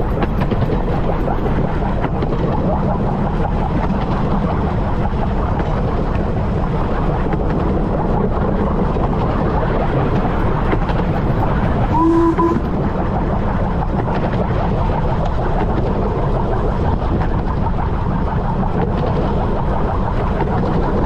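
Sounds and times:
steam locomotive running: 0:05.0 - 0:14.4
steam whistle blast: 0:11.9 - 0:12.7.

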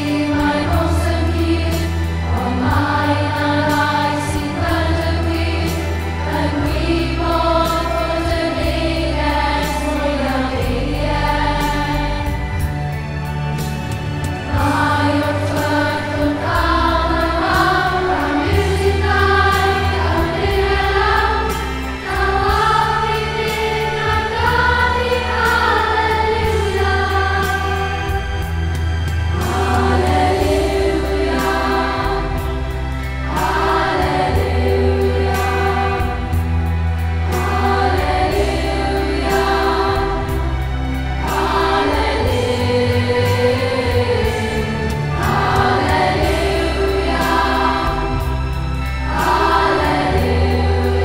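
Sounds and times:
children's choir singing: 0:00.0 - 0:51.0
instrumental accompaniment with bass: 0:00.0 - 0:51.0.

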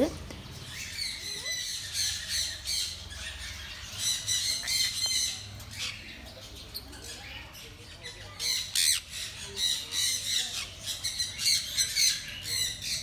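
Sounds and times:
parrots squawking and screeching: 0:00.5 - 0:13.0.

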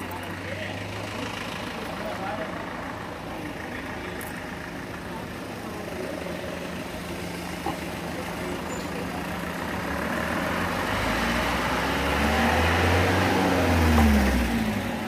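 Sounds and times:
vehicle engine passing by: 0:08.4 - 0:15.0.

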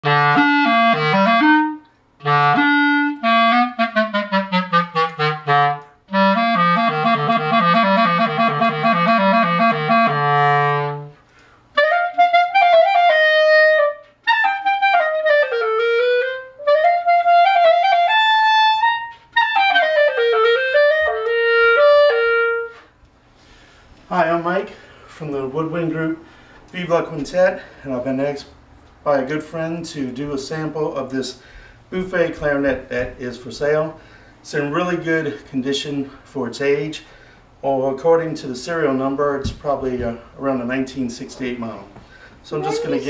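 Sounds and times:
solo clarinet: 0:00.0 - 0:23.0, 0:42.5 - 0:43.0.

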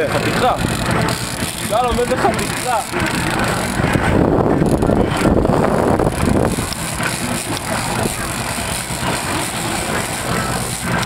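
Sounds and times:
outboard motor running: 0:00.0 - 0:11.0.

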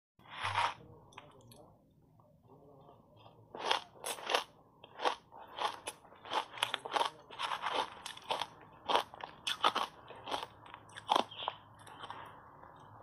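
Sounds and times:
ice being bitten and chewed: 0:03.6 - 0:12.9.

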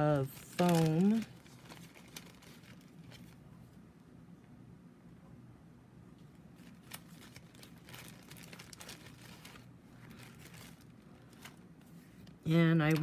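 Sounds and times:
paper and foam rustling: 0:00.0 - 0:03.7, 0:06.6 - 0:13.0.

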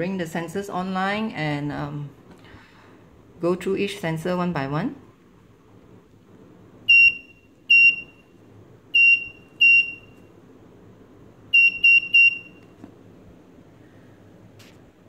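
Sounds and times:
high buzzer beeps: 0:06.9 - 0:08.2, 0:09.0 - 0:10.2, 0:11.5 - 0:12.6.

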